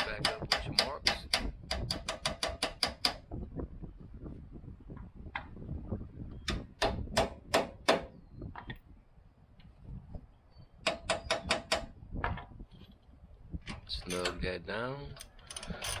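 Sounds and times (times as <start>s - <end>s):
sharp metal clicks of hand tools: 0.0s - 3.2s.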